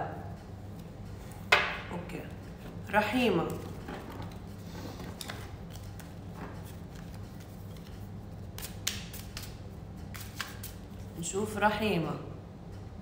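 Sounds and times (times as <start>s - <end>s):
steady low hum: 0.0s - 13.0s
cards clicking and snapping: 6.9s - 10.8s.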